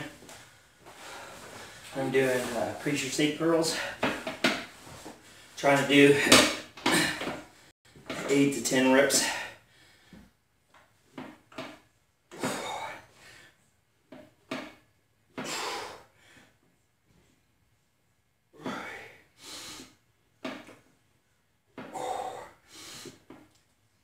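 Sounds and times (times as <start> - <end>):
man breathing heavily: 0.1 - 2.6, 3.6 - 7.7, 9.1 - 10.4, 12.4 - 13.6, 15.4 - 16.6, 18.6 - 20.0, 21.8 - 23.4.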